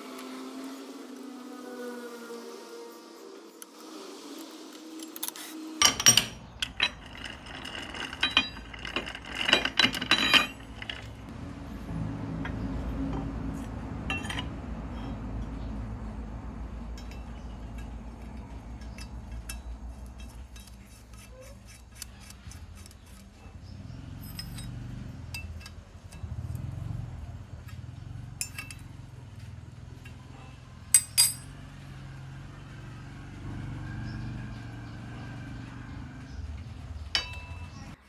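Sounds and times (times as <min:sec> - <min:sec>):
light metallic clicks and clinks: 0:24.1 - 0:26.7, 0:28.4 - 0:28.9, 0:30.9 - 0:31.6.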